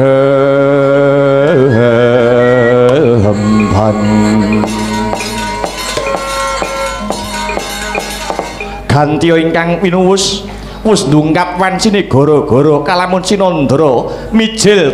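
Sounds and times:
person singing long wavering notes: 0:00.0 - 0:08.9
gamelan playing: 0:02.2 - 0:09.2.

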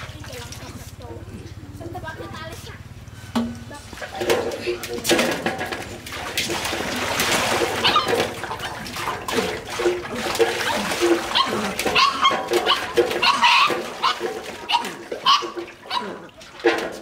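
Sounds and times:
water splashing into a metal basin: 0:00.0 - 0:01.0, 0:03.4 - 0:17.0
puppy crying: 0:07.8 - 0:08.2, 0:10.6 - 0:16.4.

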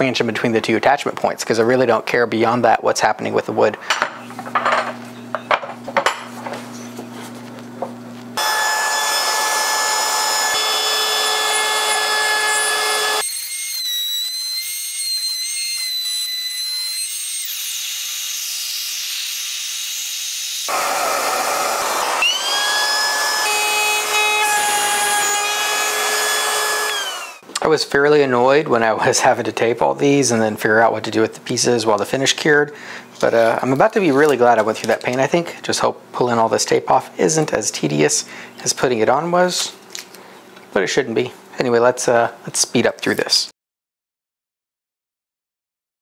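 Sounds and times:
trim router high whine: 0:08.4 - 0:27.4.

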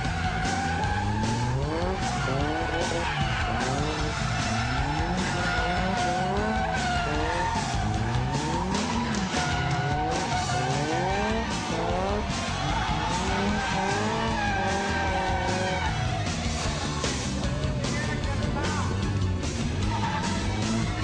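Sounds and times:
tyres squealing: 0:00.0 - 0:16.0
car engine revving: 0:00.0 - 0:21.0.

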